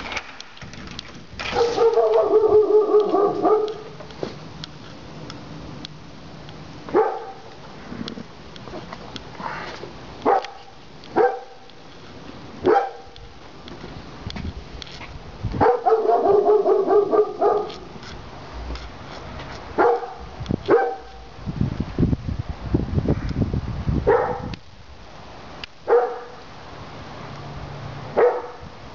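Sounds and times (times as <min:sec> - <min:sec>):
dog barking: 0:01.5 - 0:03.9, 0:06.9 - 0:07.5, 0:10.2 - 0:11.7, 0:12.6 - 0:13.2, 0:15.6 - 0:17.8, 0:19.8 - 0:21.2, 0:24.1 - 0:24.5, 0:25.9 - 0:26.4, 0:28.2 - 0:28.6.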